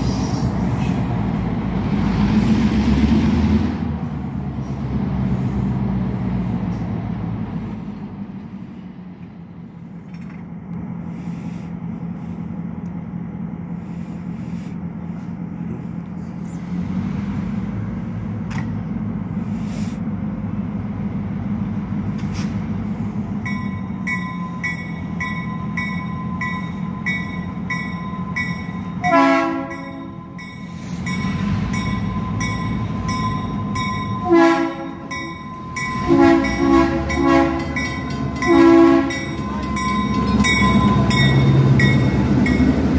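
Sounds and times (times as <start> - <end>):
locomotive engine rumble: 0.0 - 42.9
train horn blasts: 29.0 - 30.2, 34.2 - 35.3, 35.9 - 39.8
bell ringing: 34.9 - 42.8.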